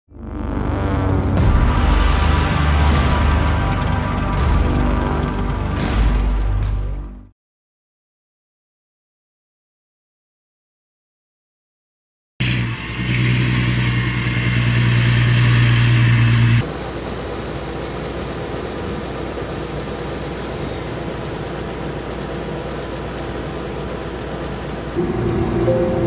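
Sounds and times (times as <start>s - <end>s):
heavy machinery humming: 0.1s - 7.0s, 12.4s - 26.0s.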